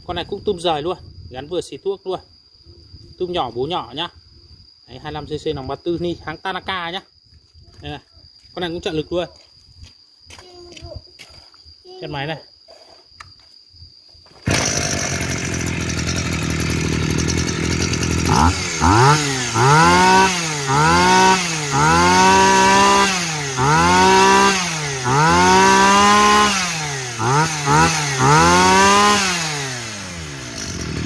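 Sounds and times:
brush-cutter engine revving: 14.4s - 31.0s.

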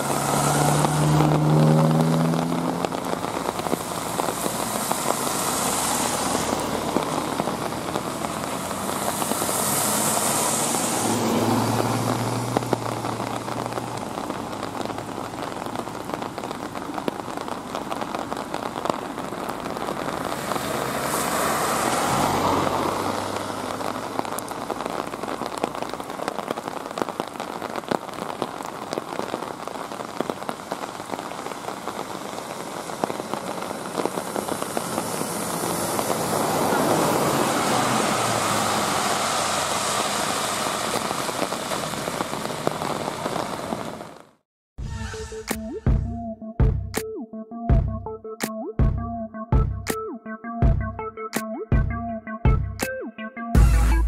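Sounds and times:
raindrops ticking close by: 0.0s - 44.4s
steady rain falling: 0.0s - 44.4s
cars passing on wet road: 0.0s - 45.6s.

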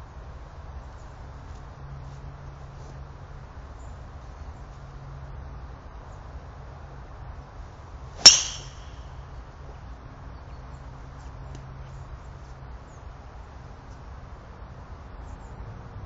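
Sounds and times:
faint outdoor background: 0.0s - 16.0s
golf club striking ball: 8.2s - 9.3s.

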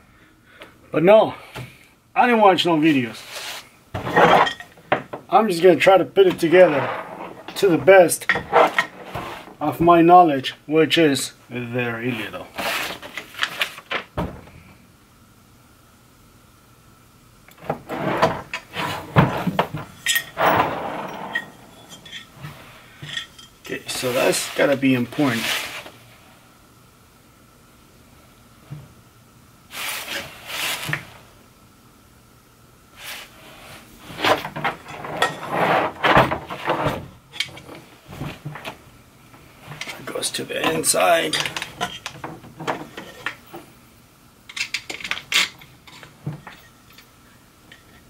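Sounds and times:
metal parts clunking and rattling: 4.0s - 5.2s, 6.3s - 9.6s, 17.6s - 23.6s, 34.2s - 38.8s, 39.7s - 43.7s, 44.5s - 48.0s
rustling: 17.6s - 26.4s.

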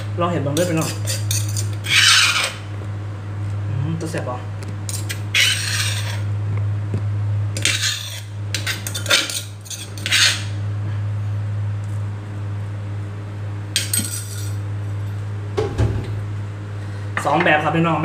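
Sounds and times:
steady low hum: 0.0s - 18.0s
spoon scraping and clinking dishes: 0.6s - 2.6s, 4.9s - 6.3s, 7.6s - 10.5s, 13.8s - 14.6s.

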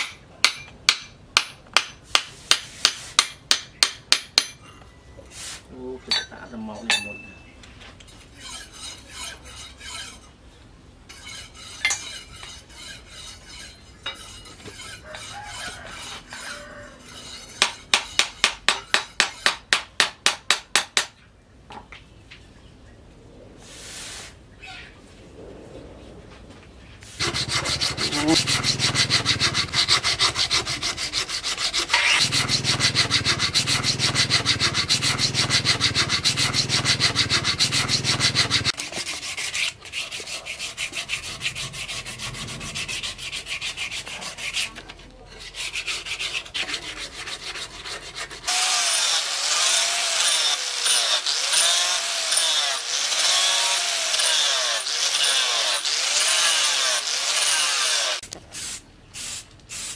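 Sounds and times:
scraping strokes on wood: 1.0s - 4.6s, 7.8s - 10.4s, 11.1s - 21.1s, 27.0s - 58.3s
angle grinder grinding steel: 11.1s - 18.2s, 27.2s - 58.2s.

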